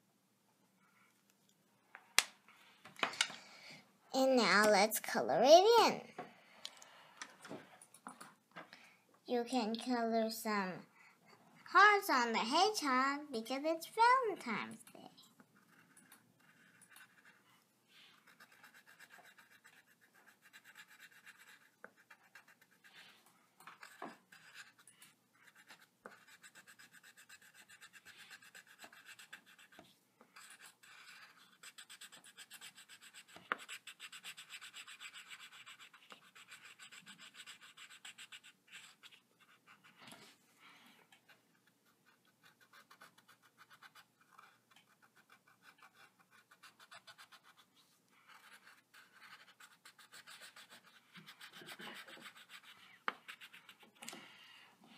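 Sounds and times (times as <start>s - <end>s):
pencil scratching on paper: 13.8s - 40.4s, 41.1s - 54.1s.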